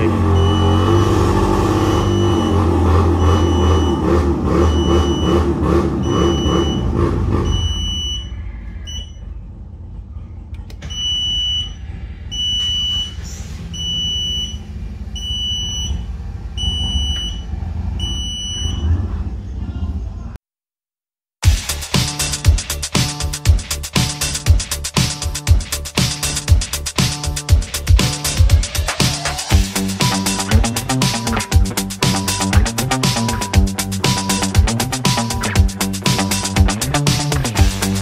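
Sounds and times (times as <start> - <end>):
short high electronic beep: 0.3 - 1.1, 1.8 - 5.4, 30.0 - 36.7.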